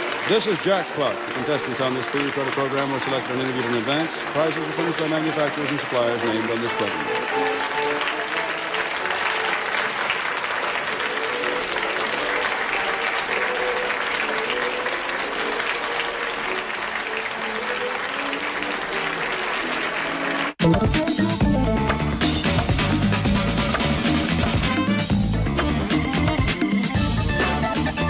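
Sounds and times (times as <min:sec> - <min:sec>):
audience applauding: 0:00.0 - 0:21.2
game show theme music: 0:00.0 - 0:28.0.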